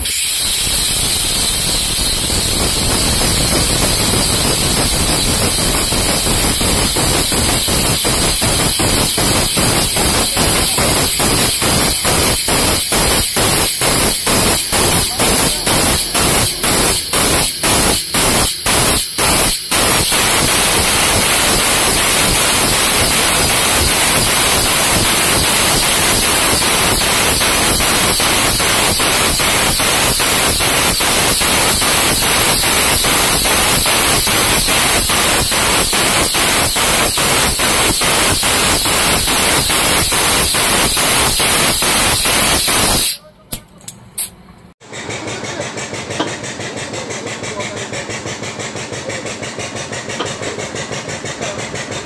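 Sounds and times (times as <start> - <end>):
hydraulic pump hissing and pulsing: 0.0 - 43.2, 44.2 - 52.0.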